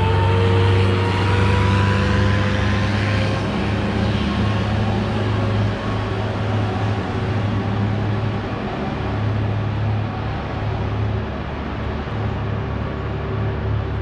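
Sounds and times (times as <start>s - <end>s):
street traffic: 0.0s - 14.0s.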